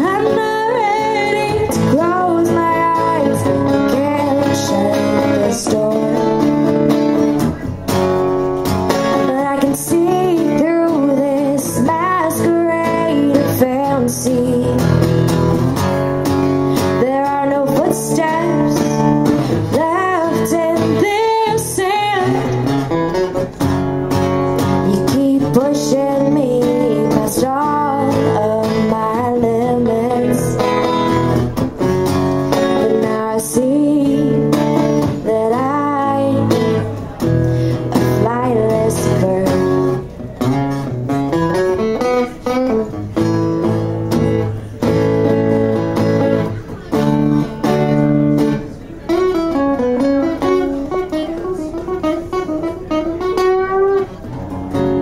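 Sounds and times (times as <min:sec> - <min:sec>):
woman singing: 0:00.0 - 0:07.4, 0:09.1 - 0:15.1, 0:16.8 - 0:22.9, 0:24.7 - 0:31.2, 0:32.5 - 0:40.0
acoustic guitar playing: 0:00.0 - 0:55.0.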